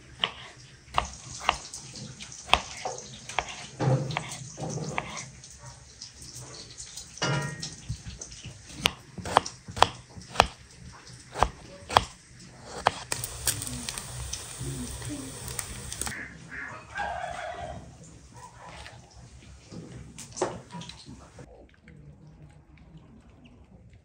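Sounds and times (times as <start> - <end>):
knife tapping on cutting board: 8.8 - 10.6, 11.4 - 12.1.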